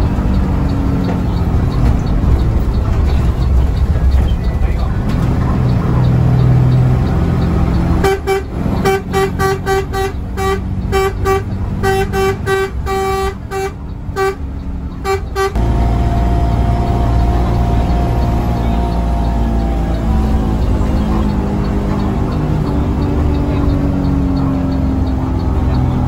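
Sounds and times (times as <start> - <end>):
bus engine drone: 0.0 - 26.0
bus horn toots: 6.0 - 26.0.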